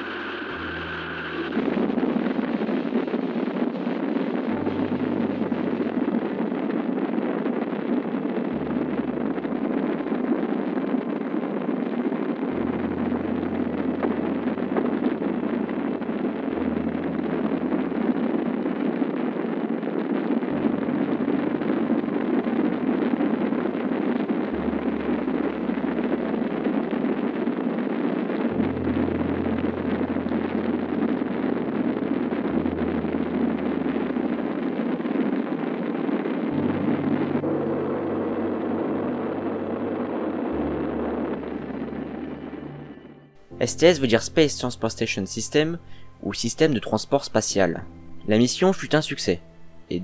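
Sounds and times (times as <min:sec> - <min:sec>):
rocket engines roaring: 0:00.0 - 0:06.1
low background music: 0:00.0 - 0:50.0.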